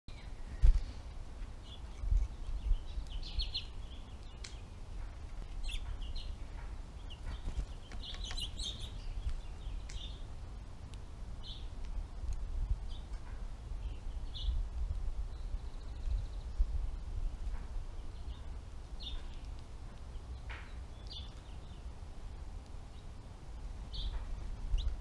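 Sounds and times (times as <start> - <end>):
finches chirping: 1.6 - 4.8, 5.5 - 10.3, 17.3 - 21.9
steady low rumble: 8.5 - 25.0.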